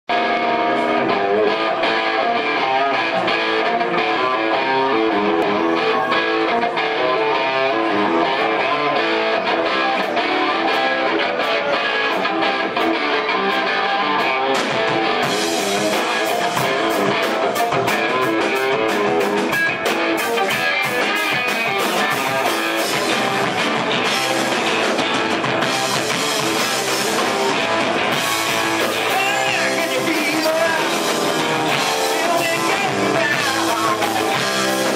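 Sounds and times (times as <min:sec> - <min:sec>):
guitar: 0:00.0 - 0:34.9
rock band playing: 0:00.1 - 0:34.9
drums and cymbals: 0:09.8 - 0:34.9.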